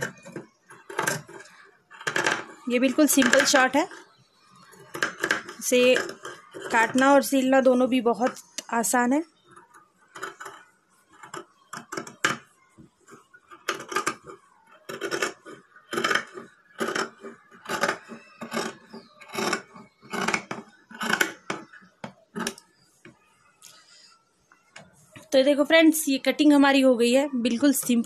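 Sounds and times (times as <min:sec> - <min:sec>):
shears cutting fabric: 0:14.9 - 0:21.4.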